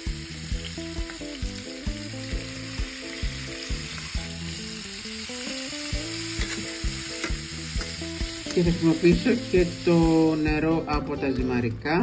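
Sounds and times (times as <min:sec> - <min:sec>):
sauce sizzling in oil: 0:00.0 - 0:11.0
background music with beat: 0:00.0 - 0:12.0.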